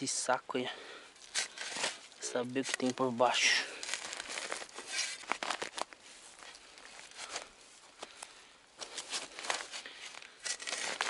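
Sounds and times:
spade scraping soil and leaves: 1.2s - 3.6s, 9.0s - 11.0s.

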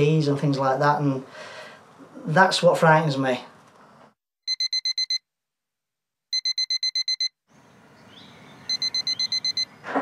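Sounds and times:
alarm clock beeping: 4.5s - 5.2s, 6.3s - 7.4s, 8.7s - 9.7s.

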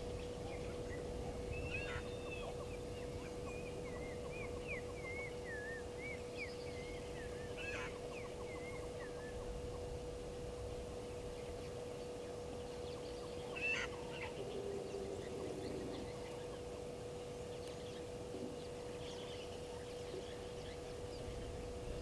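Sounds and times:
lower softer bird calls: 0.0s - 22.0s
steady hum: 0.0s - 22.0s
lapwing sharp call: 1.5s - 3.6s, 6.8s - 9.4s, 13.4s - 16.6s.

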